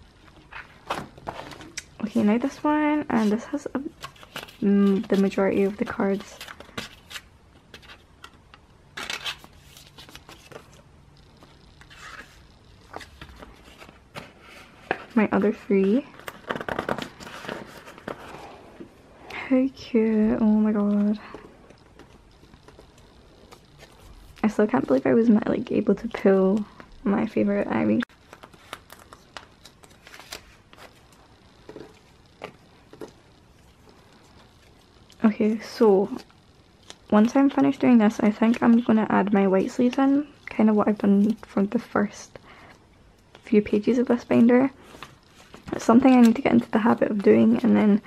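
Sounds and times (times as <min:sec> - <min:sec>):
plastic card sleeves rustling: 0:00.2 - 0:18.6, 0:19.7 - 0:42.2.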